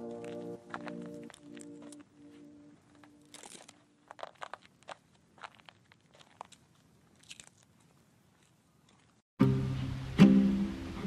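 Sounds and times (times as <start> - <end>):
background music: 0.0 - 3.4, 9.4 - 11.0
cord crinkling and clicking: 0.7 - 2.1, 2.9 - 9.2.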